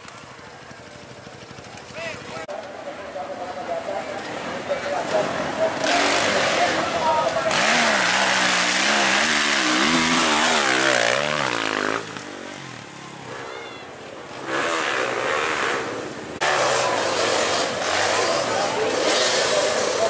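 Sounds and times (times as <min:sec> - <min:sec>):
dirt bike engine revving: 0:05.1 - 0:13.6, 0:14.3 - 0:20.0.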